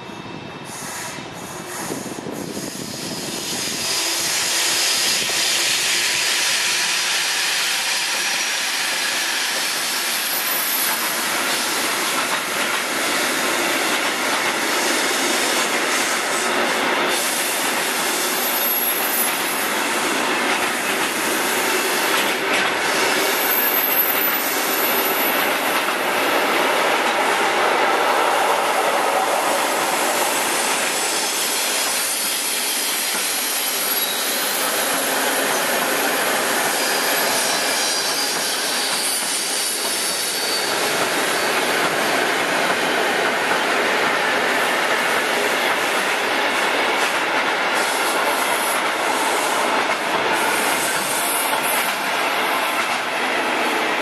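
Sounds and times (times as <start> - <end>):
train wheels rumbling on rails: 0.0 - 54.0
high wheel squeals: 22.8 - 25.6, 29.6 - 42.3.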